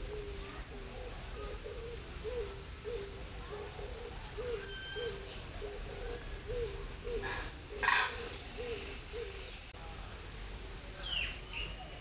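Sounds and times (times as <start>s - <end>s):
bird low hooting calls: 0.0s - 9.6s
faint high bird chirps: 4.0s - 6.7s.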